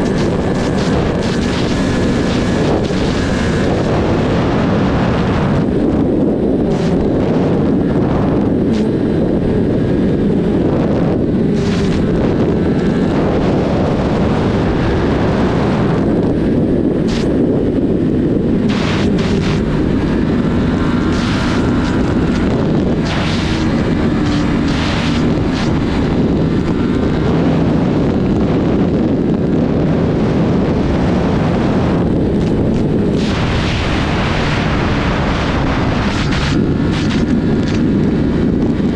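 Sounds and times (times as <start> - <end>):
motorcycle engine drone: 0.0 - 38.9
wind noise on microphone: 0.0 - 38.9.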